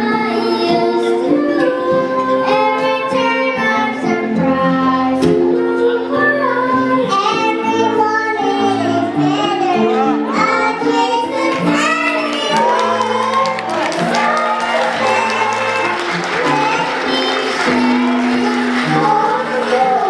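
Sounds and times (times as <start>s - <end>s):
children singing into microphones: 0.0s - 20.0s
backing music: 9.9s - 20.0s.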